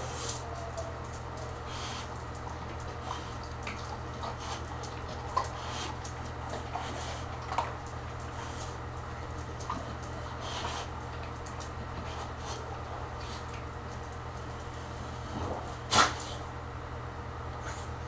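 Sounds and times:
steady low hum: 0.0 - 18.0
dog clicking and tapping on floor: 0.2 - 12.6.

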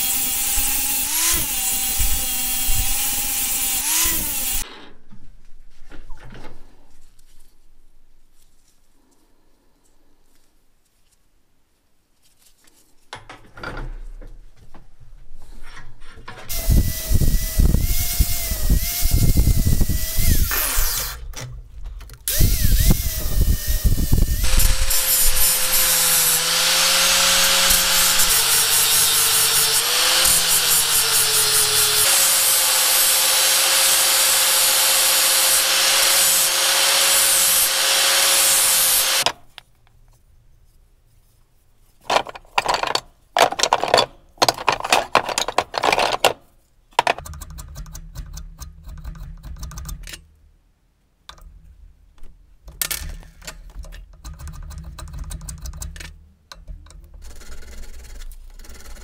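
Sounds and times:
angle grinder grinding metal: 0.0 - 4.6, 16.5 - 21.3, 22.3 - 39.4.

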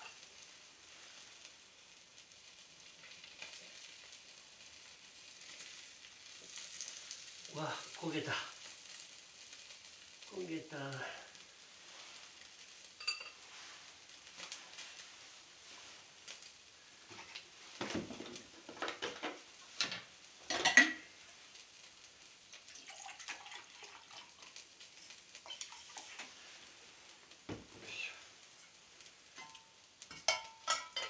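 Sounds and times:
faint fish sizzling: 0.0 - 31.0
dishes and utensils clinking: 13.0 - 13.5, 17.1 - 21.1, 25.4 - 26.3, 29.4 - 31.0.

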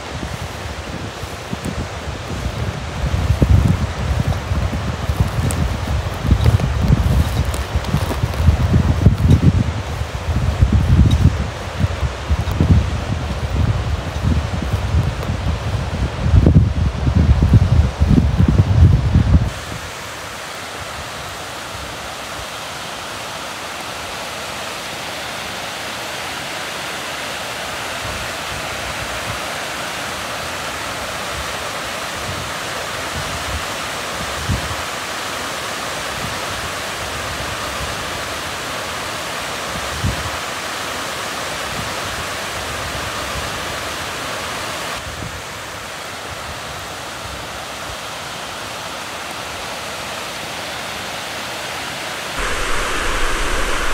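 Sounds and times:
fast river rushing: 52.4 - 53.9
low thumps: 52.4 - 53.9.

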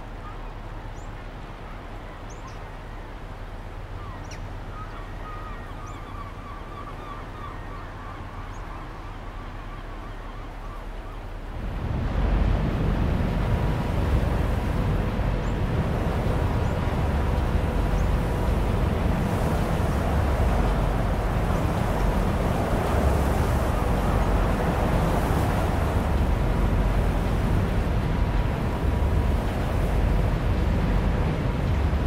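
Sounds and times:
choppy water washing: 11.2 - 32.0
strong wind rumbling: 11.5 - 32.0.

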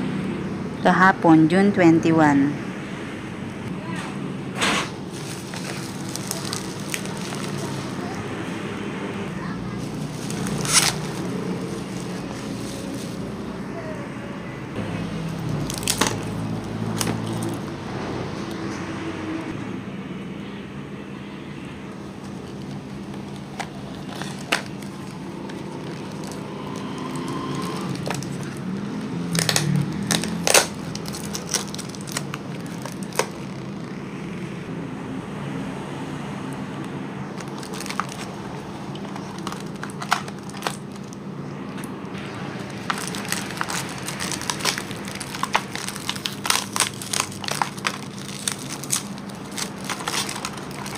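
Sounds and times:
paper and plastic crinkling: 4.9 - 8.2, 9.5 - 13.5, 15.2 - 17.7, 22.2 - 33.8, 37.3 - 41.2, 41.8 - 50.9.

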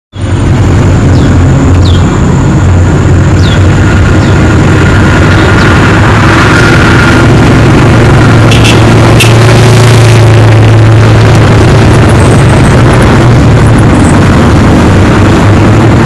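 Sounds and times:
faint whine: 0.1 - 16.0
vehicle engine running: 0.1 - 16.0.

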